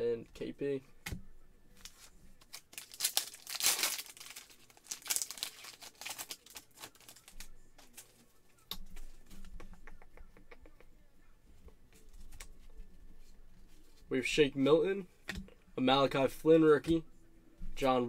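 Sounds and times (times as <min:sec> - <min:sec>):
foil wrapper crinkling and tearing: 0:01.8 - 0:08.1.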